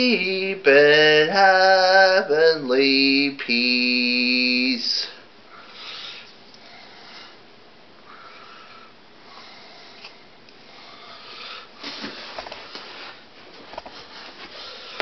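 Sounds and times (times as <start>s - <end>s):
person breathing: 5.0s - 13.3s, 14.0s - 15.0s.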